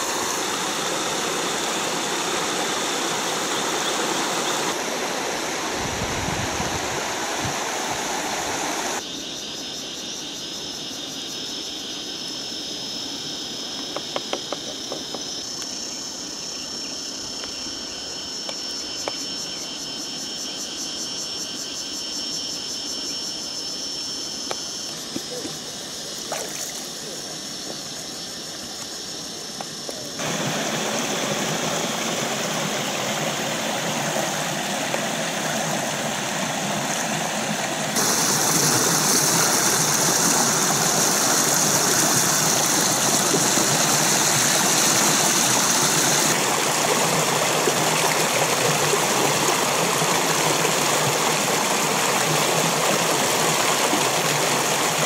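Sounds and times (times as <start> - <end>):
stream rushing over rocks: 0.0 - 9.0, 30.1 - 55.0.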